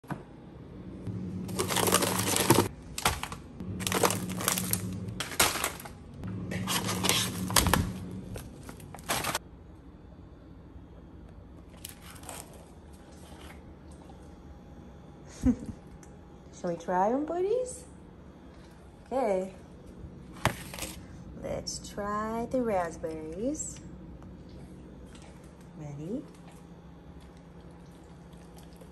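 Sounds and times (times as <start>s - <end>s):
plastic bags crinkling: 1.4s - 6.0s, 6.6s - 9.4s.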